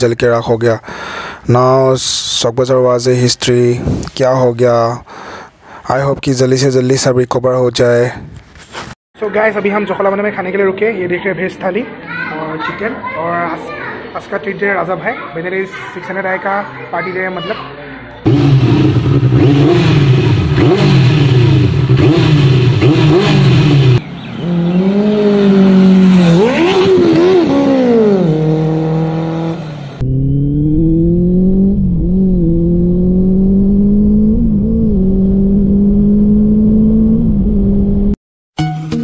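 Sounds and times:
motorcycle engine revving: 0:18.3 - 0:38.2.

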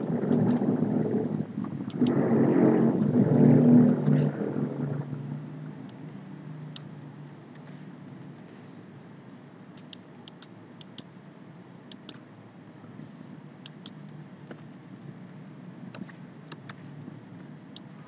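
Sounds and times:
steady low hum: 0:00.0 - 0:18.0
computer mouse clicking: 0:00.1 - 0:00.7, 0:01.7 - 0:02.3, 0:03.0 - 0:04.3, 0:06.7 - 0:06.9, 0:07.5 - 0:07.8, 0:09.8 - 0:11.1, 0:11.9 - 0:12.2, 0:13.6 - 0:14.1, 0:15.9 - 0:16.9, 0:17.7 - 0:18.0.

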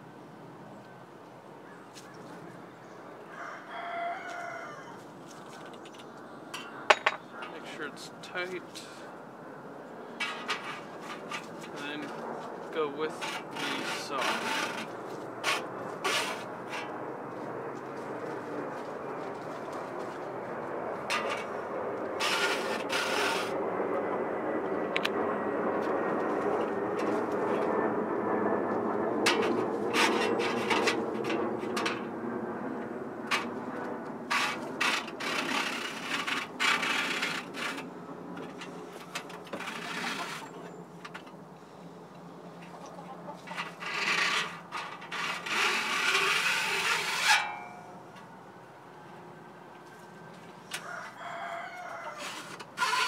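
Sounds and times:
file rasping on saw teeth: 0:13.2 - 0:14.8, 0:22.2 - 0:23.5, 0:45.2 - 0:47.4
file scraping saw teeth: 0:13.2 - 0:14.9, 0:15.5 - 0:16.9, 0:22.2 - 0:23.5, 0:34.3 - 0:37.8, 0:39.5 - 0:40.6, 0:43.6 - 0:47.6, 0:52.2 - 0:53.0.

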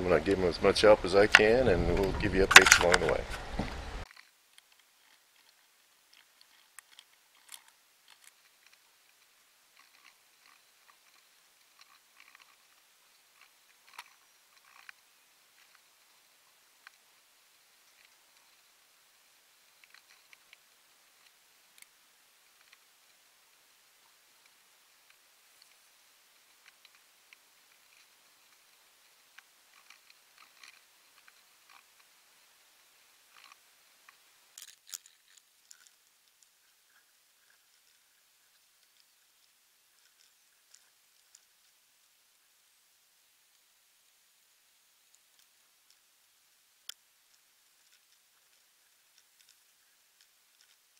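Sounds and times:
small clicks and light knocks: 0:01.3 - 0:16.1, 0:19.7 - 0:23.3, 0:24.0 - 0:32.2, 0:33.3 - 0:41.8, 0:46.8 - 0:50.9.

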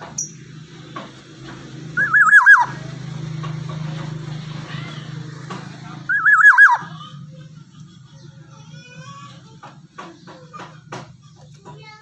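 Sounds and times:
bird fluty whistled calls: 0:02.0 - 0:02.8, 0:06.1 - 0:06.9.

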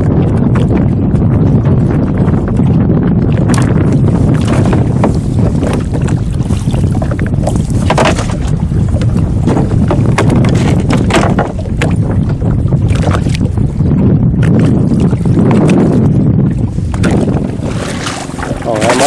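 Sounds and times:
water lapping at boat: 0:00.0 - 0:19.0
wind rumbling on microphone: 0:00.0 - 0:19.0
short splashes and knocks: 0:03.4 - 0:13.5, 0:16.9 - 0:19.0.

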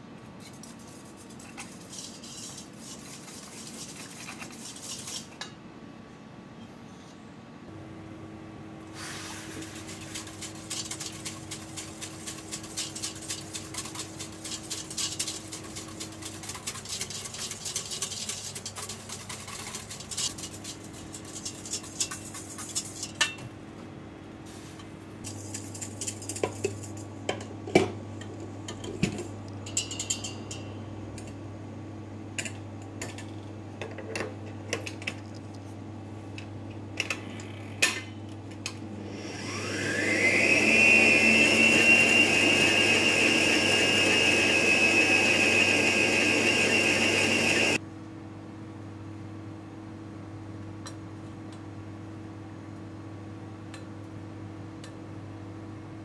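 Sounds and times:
whisk clinking against metal bowl: 0:00.5 - 0:05.5, 0:09.6 - 0:23.4, 0:25.3 - 0:27.4, 0:29.7 - 0:30.6.

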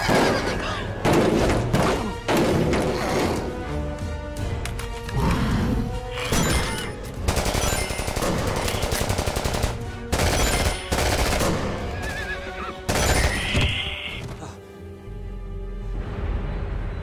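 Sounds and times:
film score music: 0:00.0 - 0:17.0
rapid gunfire: 0:07.2 - 0:11.8.

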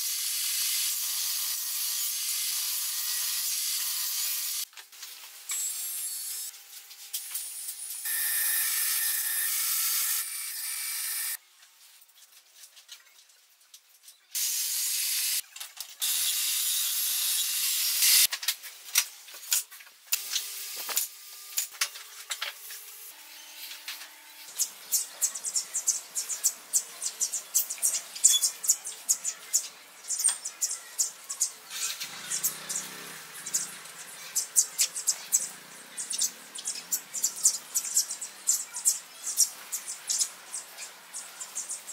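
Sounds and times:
band saw cutting wood: 0:00.0 - 0:04.6, 0:07.8 - 0:11.4
sparrows chirping: 0:24.5 - 0:41.9.

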